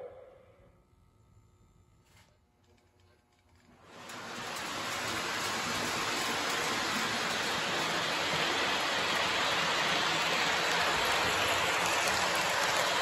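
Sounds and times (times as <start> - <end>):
model train rumbling on track: 3.7 - 13.0.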